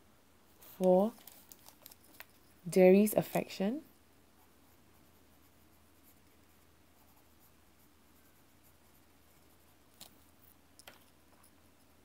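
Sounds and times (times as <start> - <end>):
pencil scratching on paper: 4.4 - 9.8.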